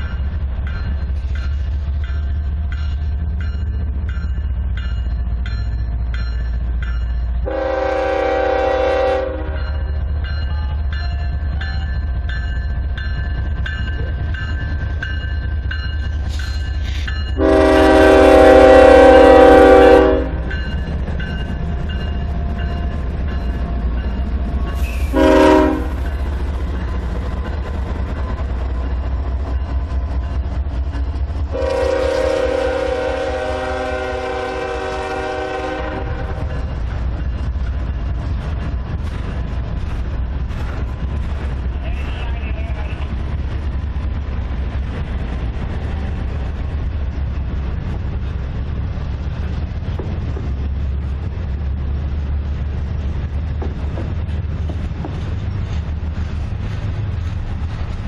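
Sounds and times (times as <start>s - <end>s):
freight train rumbling: 0.0s - 58.0s
train wheels clicking on rails: 0.0s - 58.0s
locomotive air horn blasts: 7.4s - 9.6s, 17.4s - 20.5s, 24.8s - 26.0s, 31.5s - 36.4s.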